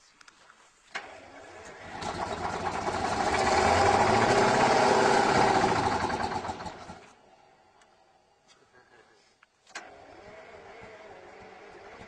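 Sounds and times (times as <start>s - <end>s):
tractor diesel engine revving: 1.0s - 7.2s, 9.8s - 12.0s.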